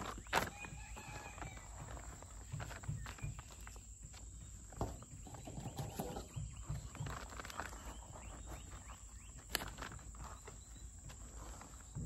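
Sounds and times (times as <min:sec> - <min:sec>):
potting mix crunching: 0:00.0 - 0:12.0
plastic bag rustling: 0:04.9 - 0:12.0.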